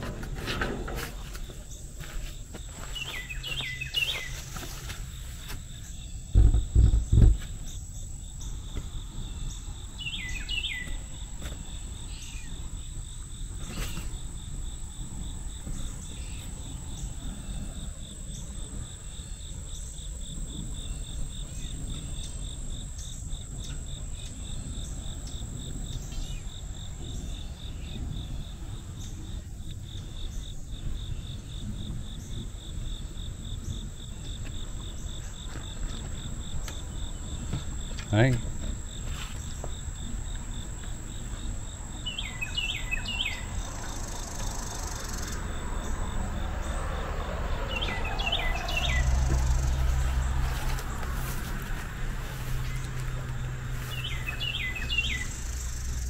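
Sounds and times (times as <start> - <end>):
insects buzzing and trilling: 0.0 - 56.0
bird chirping: 2.8 - 4.8, 5.7 - 12.9, 41.4 - 47.0, 47.6 - 51.1, 52.3 - 56.0
loud low thumps: 6.3 - 7.7.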